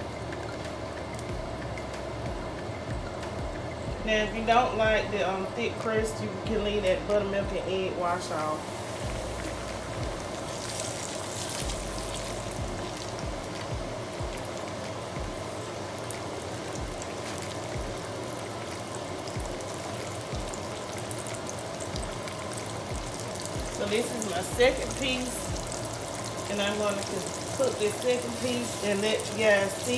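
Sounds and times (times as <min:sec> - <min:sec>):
steak sizzling in hot oil: 0:07.7 - 0:29.9.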